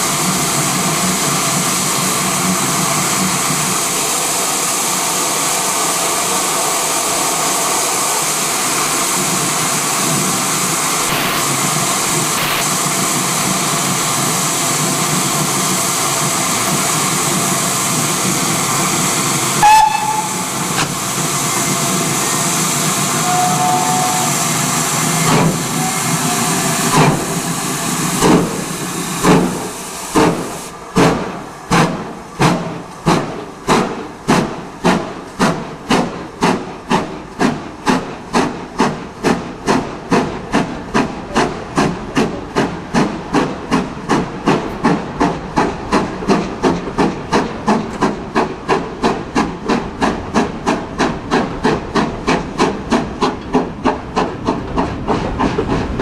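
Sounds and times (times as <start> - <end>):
steam hissing from safety valves: 0.0 - 48.8
steam locomotive exhaust chuffs: 0.0 - 56.0
steam locomotive whistle: 19.6 - 20.5, 23.0 - 24.6, 25.6 - 27.0.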